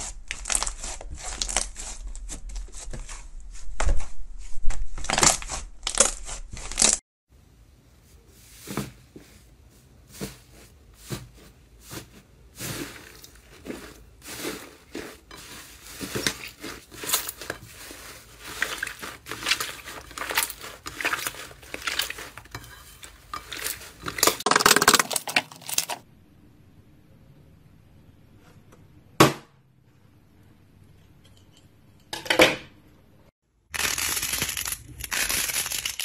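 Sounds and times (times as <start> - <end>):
slime squelching and crackling: 0.0 - 3.6, 11.1 - 26.0, 33.7 - 36.0.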